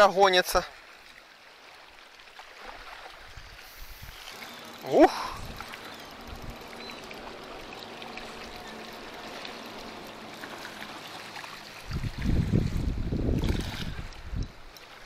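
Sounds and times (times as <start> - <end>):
water lapping at shoreline: 0.0 - 15.0
fish splashing at surface: 13.3 - 14.2.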